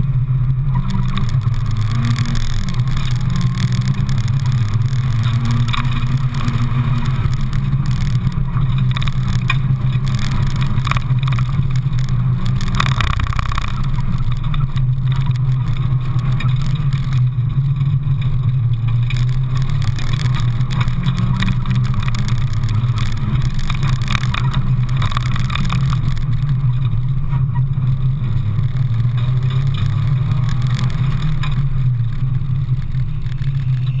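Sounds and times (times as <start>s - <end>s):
car engine revving hard: 0.0s - 26.4s.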